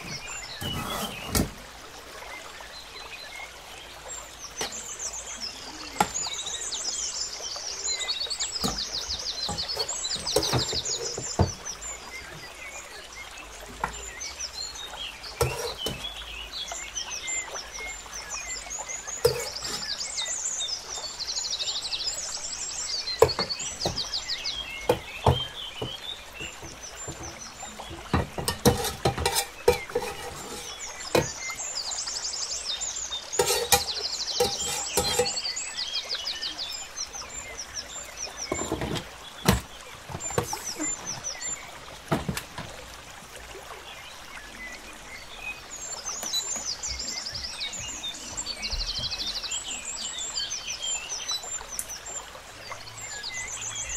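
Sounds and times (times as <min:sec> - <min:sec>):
metal spoon scraping pots: 0:00.0 - 0:01.5, 0:08.6 - 0:11.6, 0:15.4 - 0:16.1, 0:19.2 - 0:20.0, 0:23.2 - 0:24.1, 0:24.9 - 0:31.4, 0:33.4 - 0:35.5, 0:38.5 - 0:41.0.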